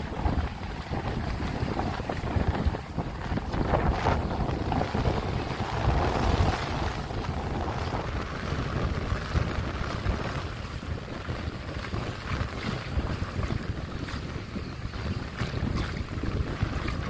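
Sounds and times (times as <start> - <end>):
sea waves washing onto beach: 0.0 - 17.0
wind buffeting microphone: 0.0 - 17.0.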